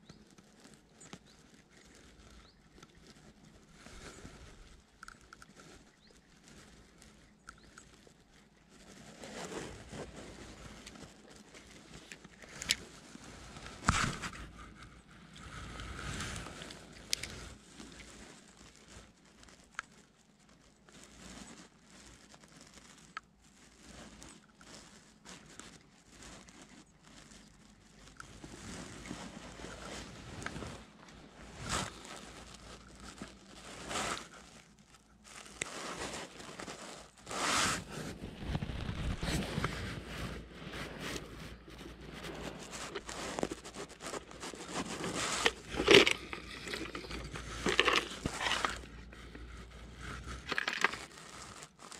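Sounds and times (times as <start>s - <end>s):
fishing rod and reel rustling: 0.0s - 51.9s.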